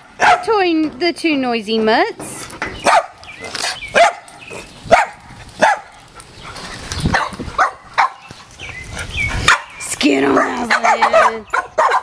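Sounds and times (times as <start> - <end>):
dog barking: 0.2 - 0.5, 2.8 - 3.2, 3.9 - 4.3, 4.9 - 6.0, 7.1 - 8.3, 9.5 - 12.0.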